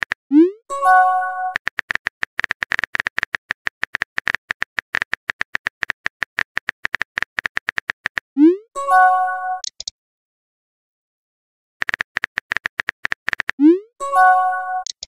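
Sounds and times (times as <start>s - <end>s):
phone keyboard clicks: 1.5s - 8.2s, 9.6s - 9.9s, 11.8s - 13.6s, 14.8s - 15.0s
message sent chime: 8.8s - 9.6s, 13.7s - 14.9s.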